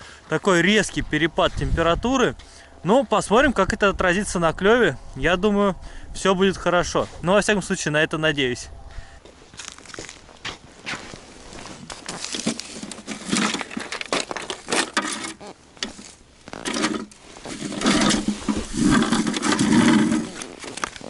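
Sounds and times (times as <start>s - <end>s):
boots crunching on ice: 9.4s - 21.0s.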